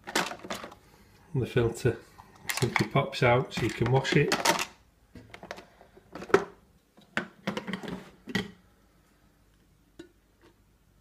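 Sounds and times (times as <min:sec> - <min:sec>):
coffee maker parts clattering: 0:00.0 - 0:00.8, 0:02.4 - 0:06.5, 0:07.2 - 0:08.6.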